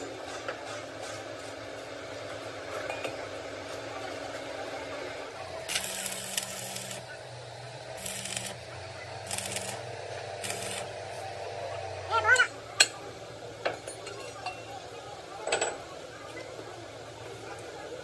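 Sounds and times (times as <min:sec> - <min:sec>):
welding machine hum: 0:04.4 - 0:12.2
welding arc hissing: 0:05.4 - 0:12.0.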